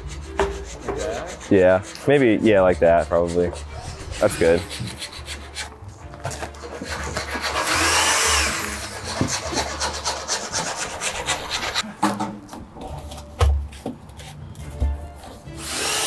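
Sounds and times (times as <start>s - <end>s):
tape crackling and rubbing: 0.0s - 11.8s.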